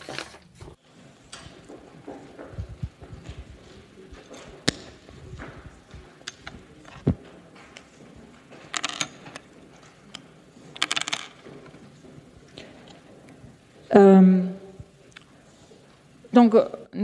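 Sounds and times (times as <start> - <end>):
microphone handling noise: 2.2 - 7.3.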